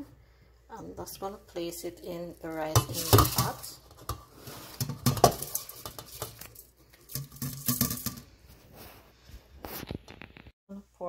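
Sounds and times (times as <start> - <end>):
bowl scraping and clinking on pot: 2.7 - 8.4.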